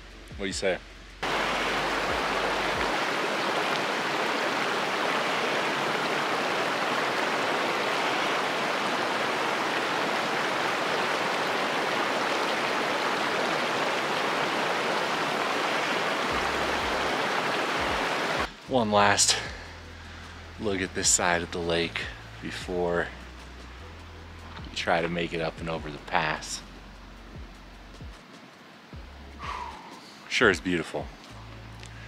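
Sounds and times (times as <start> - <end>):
mountain stream rushing: 1.2 - 19.6, 28.2 - 30.5.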